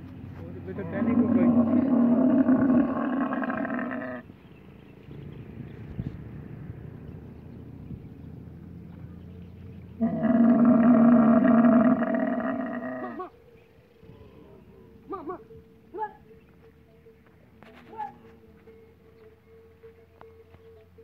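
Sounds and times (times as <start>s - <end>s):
camel bellowing: 0.7s - 4.3s, 9.9s - 13.5s
low rumbling: 0.8s - 13.2s.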